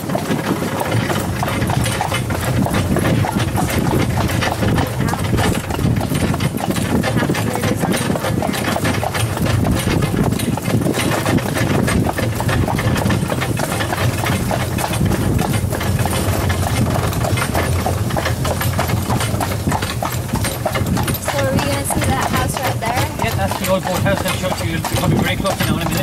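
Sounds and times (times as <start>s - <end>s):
horse hooves clopping: 0.0s - 26.0s
steady low rumble: 11.8s - 23.2s.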